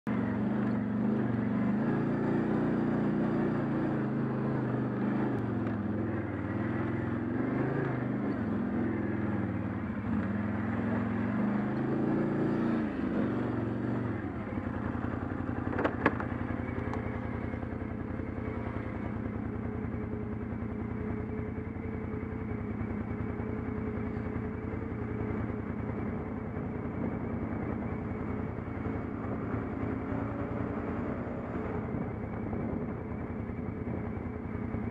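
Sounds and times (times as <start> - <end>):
atv engine revving: 0.1 - 34.9.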